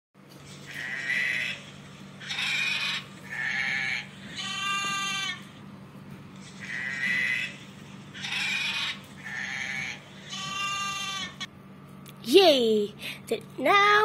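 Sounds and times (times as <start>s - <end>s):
farm animal bleating: 0.7s - 5.5s, 6.5s - 11.5s.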